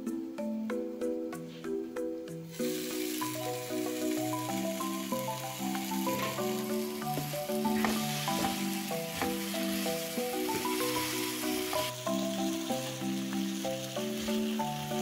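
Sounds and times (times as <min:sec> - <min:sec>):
gentle music melody: 0:00.0 - 0:15.0
meat sizzling in a pan: 0:02.5 - 0:15.0
spatula scraping pan: 0:07.6 - 0:09.9.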